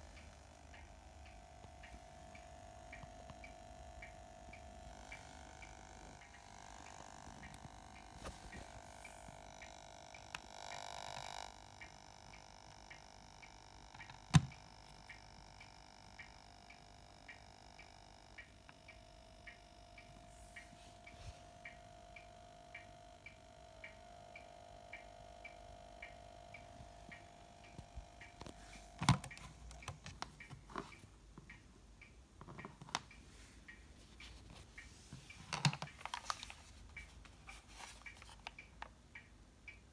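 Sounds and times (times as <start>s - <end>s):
high thin whine: 0.0s - 29.1s
faint regular ticking: 0.0s - 39.9s
low electrical hum: 0.0s - 39.9s.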